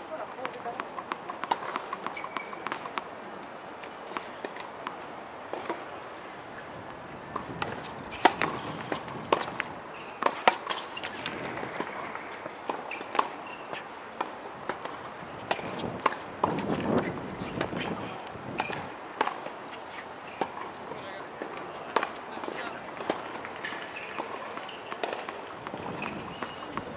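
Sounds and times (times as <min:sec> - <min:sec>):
rackets striking tennis ball: 0:00.0 - 0:03.1, 0:04.0 - 0:05.9, 0:07.3 - 0:18.0, 0:21.4 - 0:26.9
tennis ball bouncing: 0:00.0 - 0:03.1, 0:03.8 - 0:05.8, 0:07.3 - 0:18.0, 0:18.6 - 0:20.8, 0:21.4 - 0:26.9.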